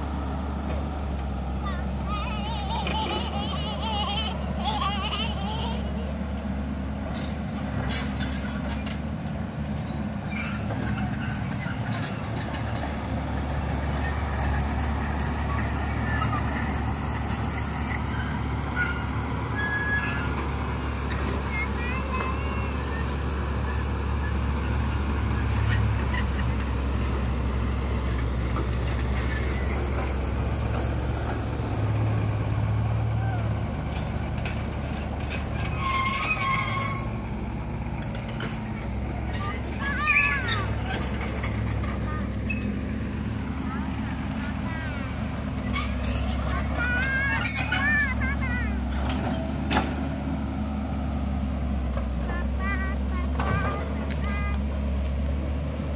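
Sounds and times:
diesel engines running: 0:00.0 - 0:55.9.

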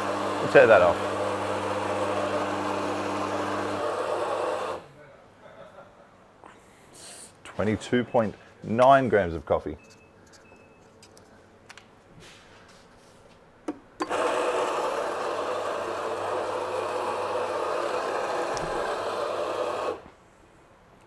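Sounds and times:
coffee grinder grinding beans: 0:00.0 - 0:04.8, 0:14.0 - 0:20.1.

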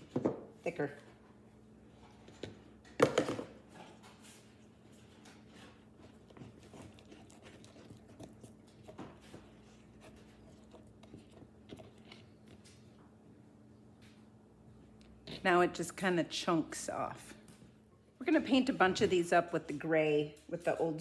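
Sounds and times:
stick stirring paint in cup: 0:05.1 - 0:12.9.

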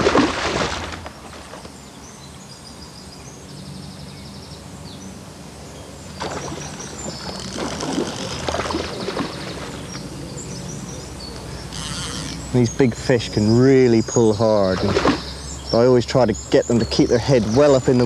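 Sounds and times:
small birds chirping: 0:01.5 - 0:18.0
rough crackling noise: 0:06.2 - 0:10.1.

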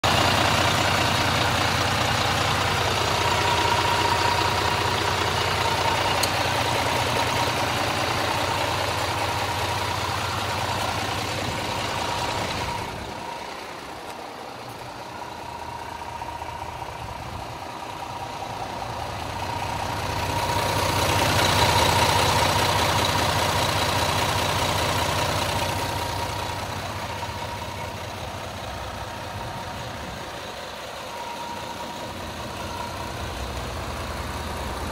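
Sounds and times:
diesel truck engine idling: 0:00.0 - 0:34.9
steady whine: 0:01.3 - 0:23.2.

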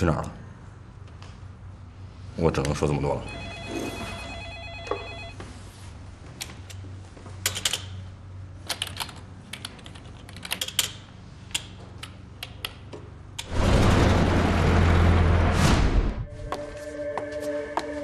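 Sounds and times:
music: 0:16.2 - 0:18.0.

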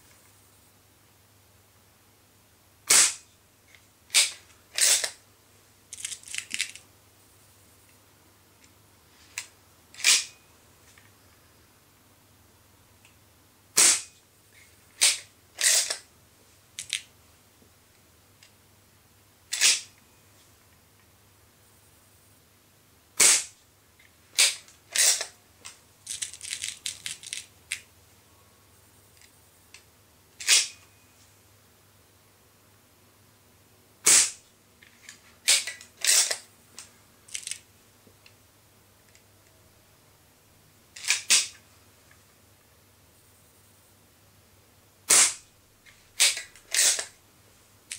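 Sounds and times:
air pistol firing crack: 0:02.9 - 0:03.2, 0:13.8 - 0:14.1, 0:23.2 - 0:23.6, 0:24.4 - 0:25.3, 0:30.4 - 0:30.8, 0:34.0 - 0:34.4, 0:45.1 - 0:45.4, 0:46.2 - 0:47.1
air pistol cocking clacks and clicks: 0:04.1 - 0:05.2, 0:15.0 - 0:16.0, 0:19.5 - 0:19.8, 0:24.4 - 0:25.3, 0:35.5 - 0:36.4, 0:46.2 - 0:47.1.

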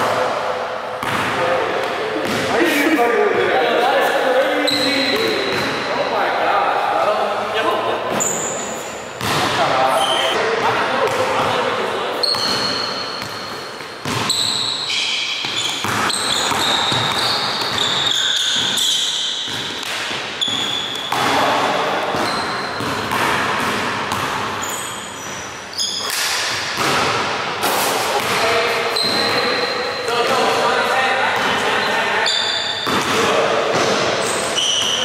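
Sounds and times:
sneaker squeaks: 0:04.6 - 0:06.3, 0:08.0 - 0:10.4, 0:11.1 - 0:26.4, 0:28.2 - 0:30.6, 0:31.5 - 0:33.1, 0:33.9 - 0:35.0
basketball bouncing on wooden floor: 0:14.0 - 0:14.4, 0:15.4 - 0:18.8.

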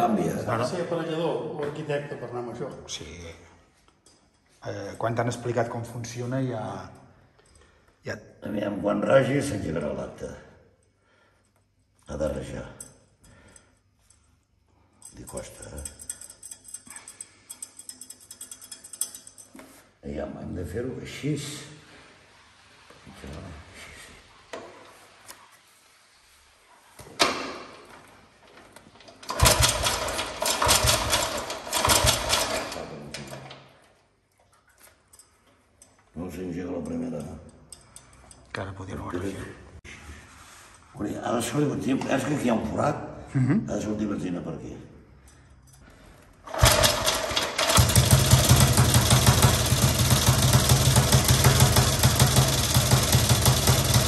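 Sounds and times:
motorcycle engine running rough: 0:29.3 - 0:32.6, 0:46.5 - 0:54.0.

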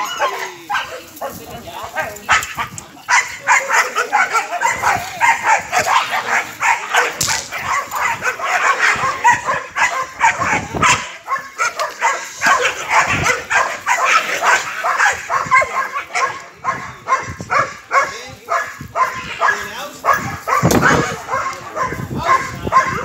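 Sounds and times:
dog barking rapidly: 0:02.0 - 0:23.0.

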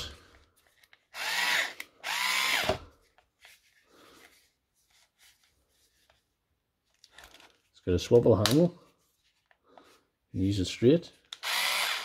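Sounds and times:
faint handling sounds: 0:00.0 - 0:01.2, 0:02.9 - 0:11.4
cordless screwdriver motor whining: 0:01.1 - 0:02.9, 0:11.3 - 0:12.0.

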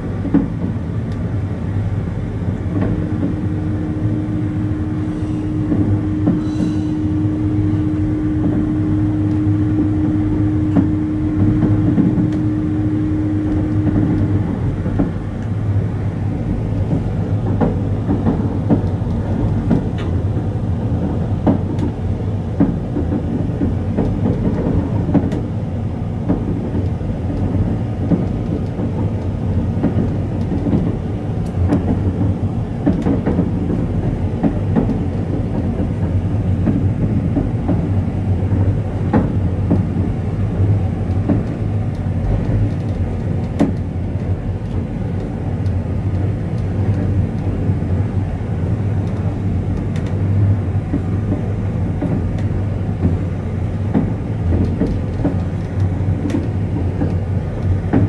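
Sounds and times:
train low rumble: 0:00.0 - 0:58.0
wheels clicking on rails: 0:26.2 - 0:58.0.

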